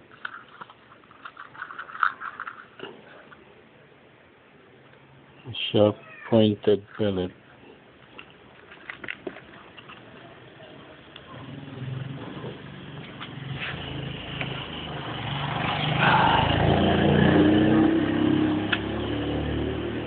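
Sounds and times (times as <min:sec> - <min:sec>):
vehicle engine passing by: 0:11.3 - 0:20.0.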